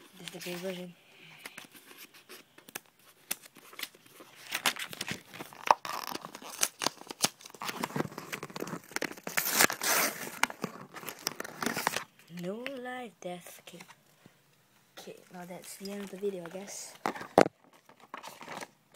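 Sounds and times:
packaging crinkling and tearing: 1.4s - 12.2s, 15.2s - 18.9s.

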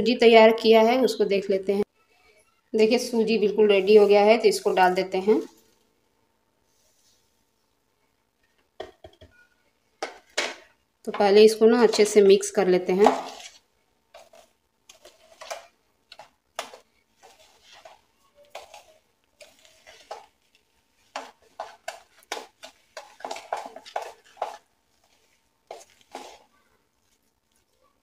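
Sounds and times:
spoon stirring in plastic bowl: 10.0s - 28.0s.

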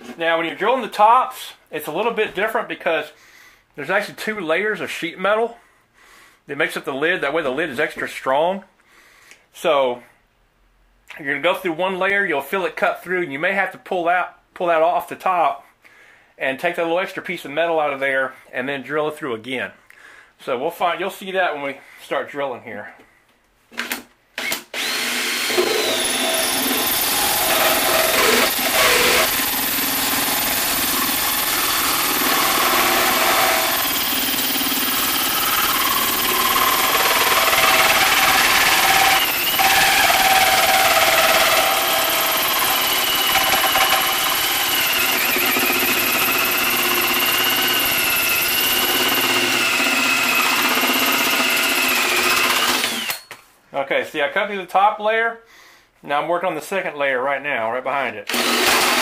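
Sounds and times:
drill motor whine: 24.4s - 53.2s, 58.3s - 59.0s
hole saw grinding metal: 24.8s - 53.3s.

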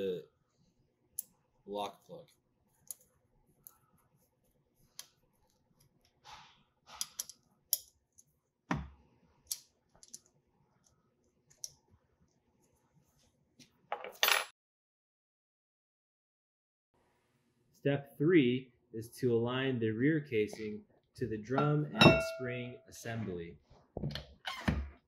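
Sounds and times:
small metallic clicks and knocks: 6.9s - 8.3s.

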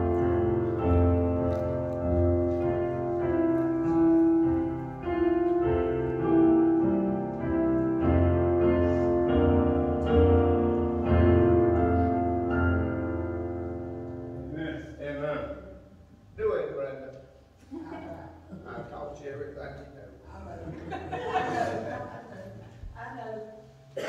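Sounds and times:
piano chords: 0.0s - 17.1s, 18.3s - 24.0s.

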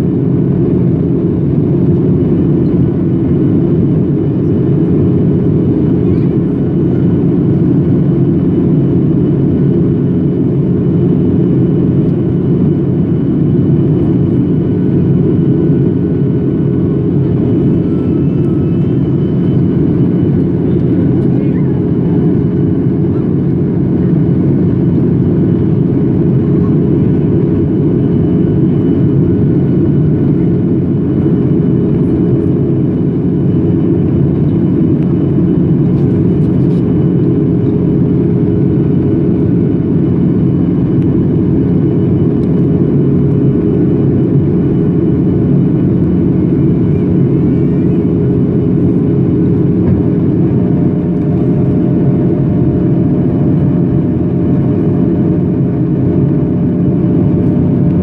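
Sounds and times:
jet engines and airflow rushing: 0.0s - 58.0s.

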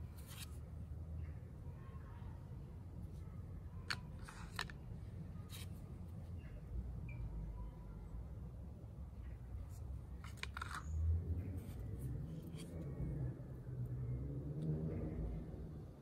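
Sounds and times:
cards clicking and sliding: 0.1s - 0.6s, 3.9s - 4.8s, 10.2s - 10.9s.

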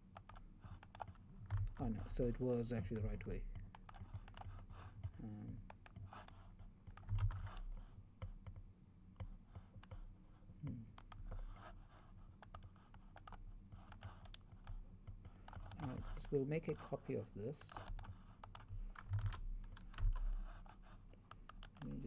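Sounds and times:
mouse and keyboard clicks: 0.2s - 1.8s, 3.6s - 4.6s, 12.4s - 14.8s, 17.6s - 20.3s, 21.2s - 22.0s.

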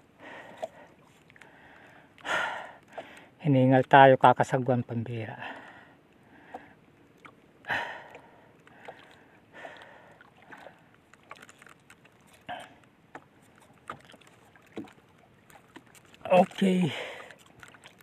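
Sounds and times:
man breathing hard: 7.7s - 10.2s
fishing gear clicking and knocking: 10.9s - 18.0s.

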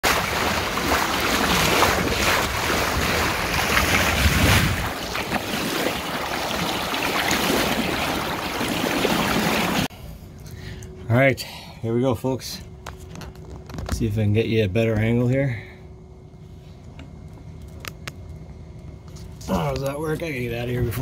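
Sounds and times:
water rushing along boat bow: 0.0s - 9.9s
wind buffeting microphone: 0.3s - 5.8s.

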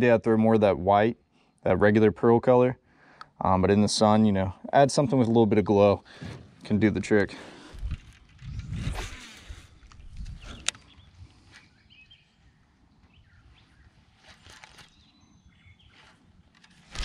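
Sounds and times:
faint bird chirps: 10.2s - 16.3s.

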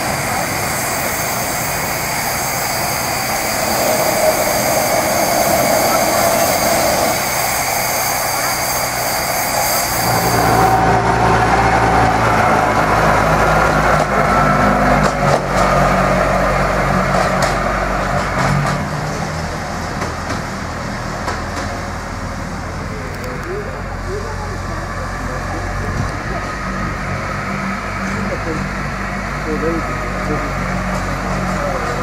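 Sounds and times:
steam locomotive hissing: 0.0s - 23.1s
diesel locomotive engine running: 0.0s - 32.0s.

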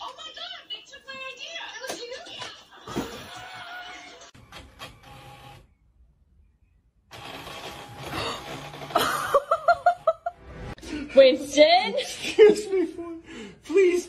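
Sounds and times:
inkjet printer whirring: 4.4s - 5.6s, 7.1s - 9.0s.

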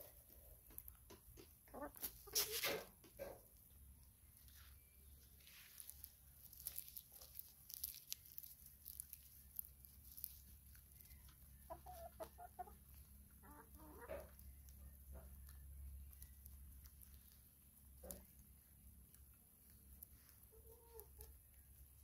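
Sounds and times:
hens clucking softly: 0.0s - 3.8s, 10.8s - 22.0s
beaks pecking at ground: 0.0s - 22.0s.

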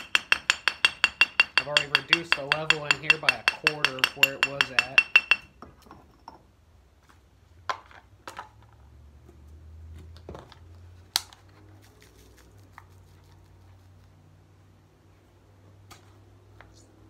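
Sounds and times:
metal and glass containers knocking: 0.0s - 6.5s.

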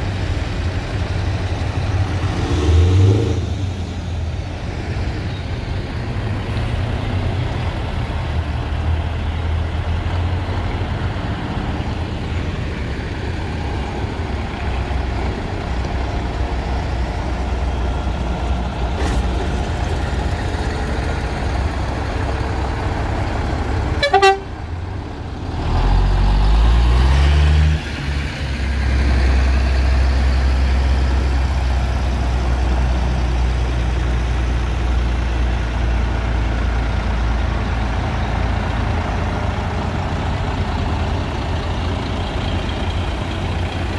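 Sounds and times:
lorry diesel engines running: 0.0s - 43.9s
engine revving: 1.8s - 4.0s, 25.4s - 31.8s
short horn toot: 24.0s - 24.5s.

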